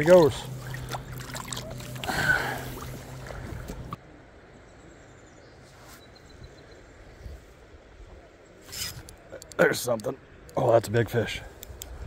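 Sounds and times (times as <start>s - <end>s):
river water washing: 0.0s - 4.0s
water sloshing around hands: 0.0s - 4.0s.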